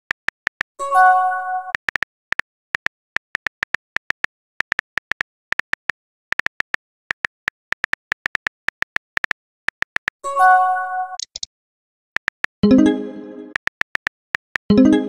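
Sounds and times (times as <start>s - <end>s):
phone keyboard typing clicks: 1.7s - 10.2s, 11.2s - 11.5s, 12.2s - 12.6s, 13.5s - 14.7s.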